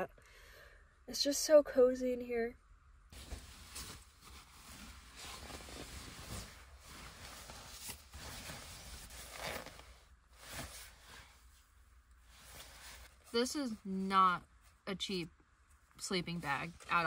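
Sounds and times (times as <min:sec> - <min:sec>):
nylon sleeping bag rustling: 0:03.1 - 0:11.5, 0:12.3 - 0:13.4.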